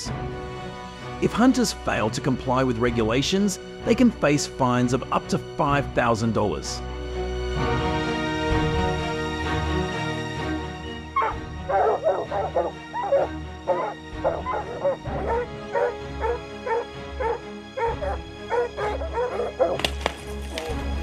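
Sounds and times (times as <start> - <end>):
background music with held tones: 0.0 - 21.0
dog barking: 11.2 - 19.8.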